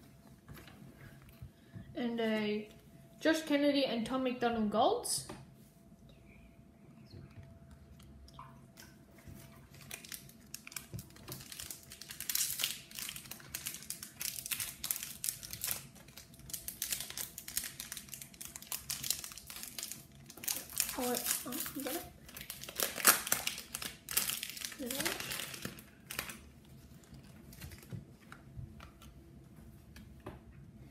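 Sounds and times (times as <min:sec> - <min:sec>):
foil pack crinkling: 0:09.6 - 0:28.0.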